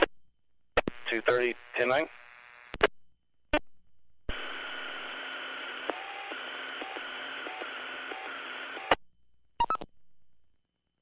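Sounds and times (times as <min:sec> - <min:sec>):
radio static hiss: 0:00.8 - 0:02.9, 0:04.3 - 0:09.0
radio squelch click: 0:05.4 - 0:09.0.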